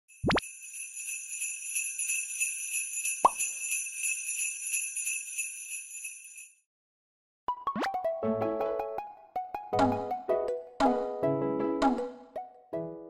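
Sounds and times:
sleigh bells jingling: 0.1 - 6.6.

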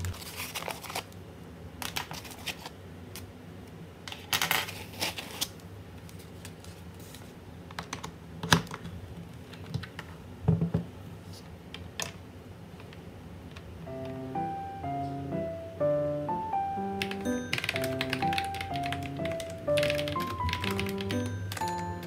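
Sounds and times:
plastic keyboard clicks and knocks: 17.0 - 22.0.

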